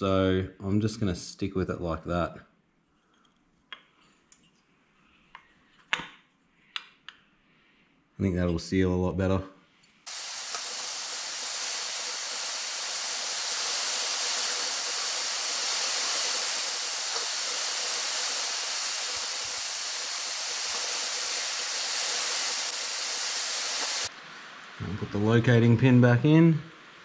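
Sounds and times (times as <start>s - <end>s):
steady high hiss: 10.1s - 27.0s.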